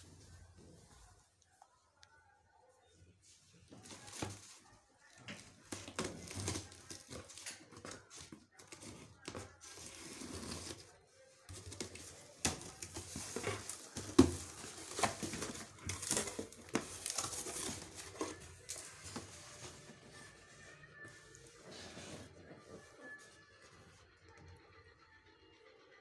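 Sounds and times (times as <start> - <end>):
cardboard scraping and rustling: 5.7 - 10.9, 11.5 - 23.3.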